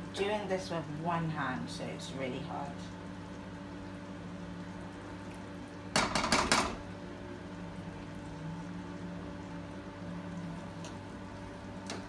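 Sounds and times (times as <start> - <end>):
low background hum: 0.0 - 12.0.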